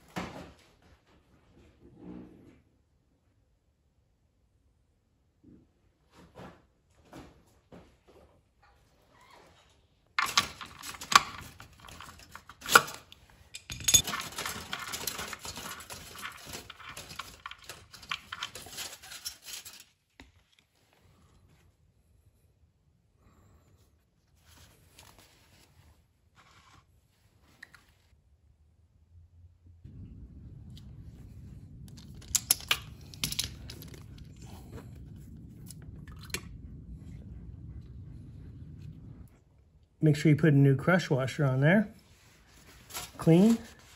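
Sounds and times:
small rattles and scrapes: 0:09.1 - 0:21.6, 0:29.9 - 0:39.4, 0:42.0 - 0:43.9
steady low hum: 0:28.2 - 0:43.9.

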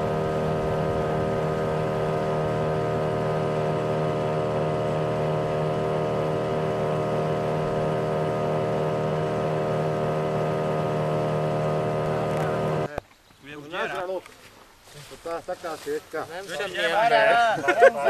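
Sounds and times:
boat engine humming: 0:00.0 - 0:12.9.

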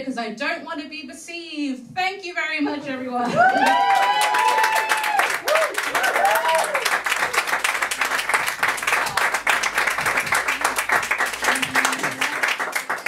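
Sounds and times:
audience clapping: 0:03.4 - 0:13.0.

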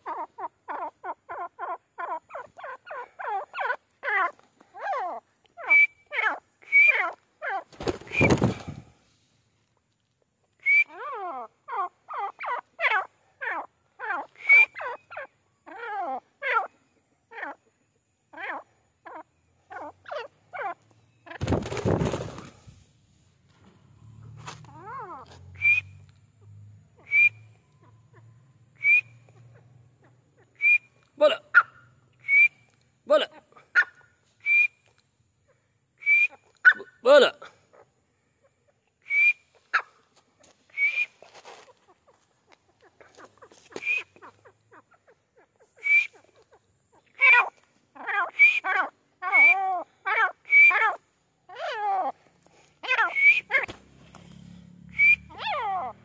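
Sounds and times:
wavering bird call: 0:00.0 - 0:08.6, 0:10.6 - 0:21.5, 0:40.7 - 0:41.3, 0:42.8 - 0:52.2, 0:52.8 - 0:53.8, 0:54.9 - 0:56.0
bird whistled notes: 0:05.6 - 0:07.0, 0:25.6 - 0:26.1, 0:27.0 - 0:27.8, 0:28.8 - 0:29.3, 0:30.6 - 0:31.0, 0:32.2 - 0:32.7, 0:34.4 - 0:34.8, 0:36.0 - 0:36.4, 0:39.0 - 0:39.4, 0:40.7 - 0:41.2, 0:43.8 - 0:44.2, 0:45.8 - 0:46.2, 0:53.1 - 0:53.5, 0:54.9 - 0:55.4.

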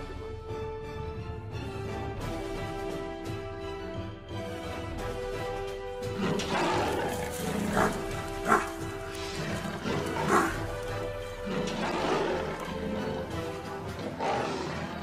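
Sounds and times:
background music: 0:00.0 - 0:15.0
leopards snarling and growling: 0:06.0 - 0:15.0.

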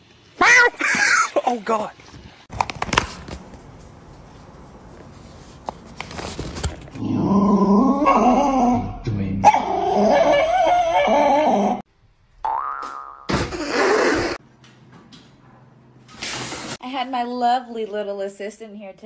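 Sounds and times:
small dog whining: 0:07.9 - 0:11.8.

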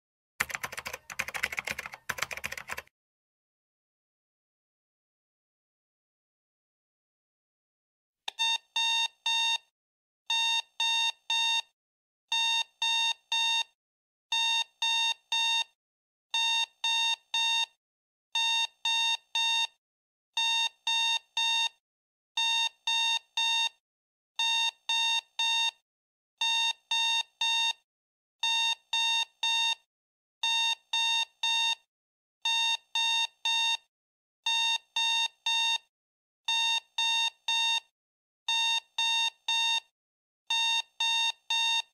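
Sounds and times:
digital alarm clock beeping: 0:36.5 - 0:37.8, 0:38.5 - 0:39.9, 0:40.5 - 0:41.9.

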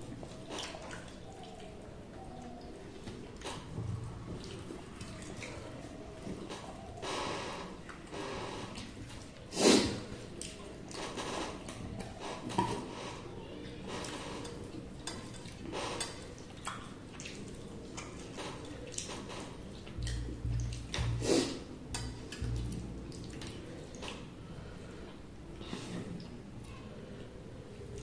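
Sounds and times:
chewing: 0:13.6 - 0:24.3
food squishing on steel plates: 0:13.6 - 0:24.4.

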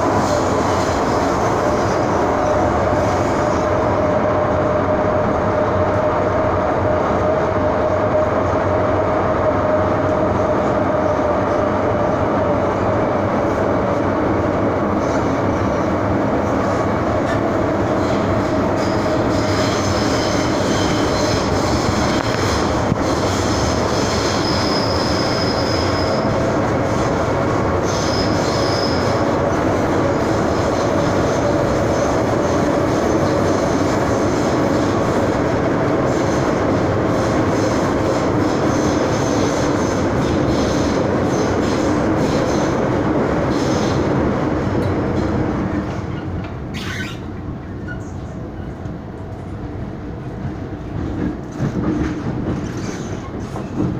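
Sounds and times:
wheels rumbling on rail: 0:00.0 - 0:53.9
high-pitched wheel squeal: 0:18.8 - 0:22.6, 0:24.0 - 0:26.3, 0:46.1 - 0:48.8.

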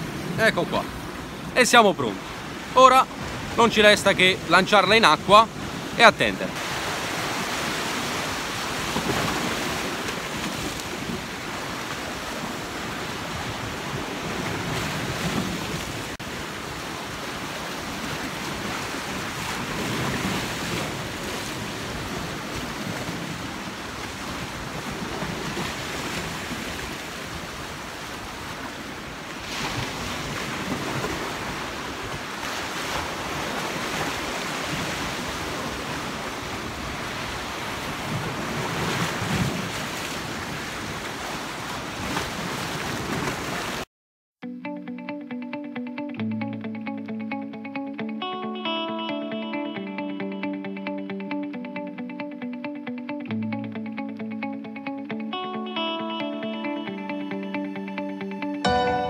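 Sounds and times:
surf breaking against rocks: 0:05.6 - 0:28.8.

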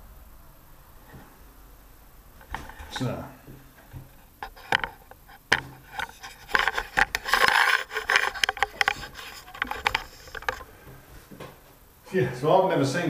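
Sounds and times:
scraping on phone: 0:04.0 - 0:10.9
fingers rubbing on phone: 0:04.1 - 0:10.8.

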